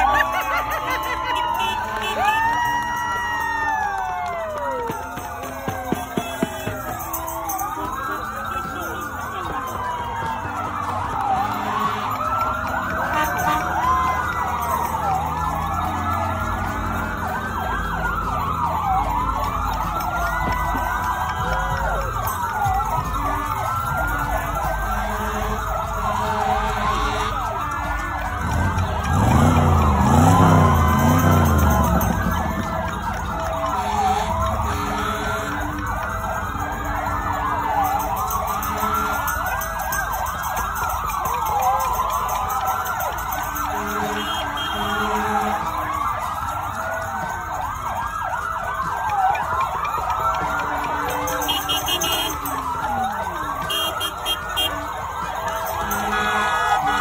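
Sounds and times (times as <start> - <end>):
sirens wailing: 0.0 - 57.0
car horns honking: 1.0 - 2.5, 5.4 - 14.1, 23.0 - 37.5, 38.3 - 39.6, 43.4 - 46.1, 50.2 - 57.0.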